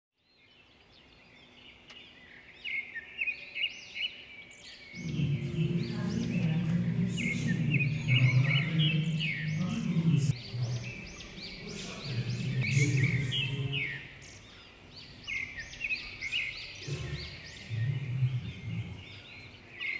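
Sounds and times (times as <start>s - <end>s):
birds chirping and twittering: 0.2s - 19.9s
low steady drone: 5.0s - 19.8s.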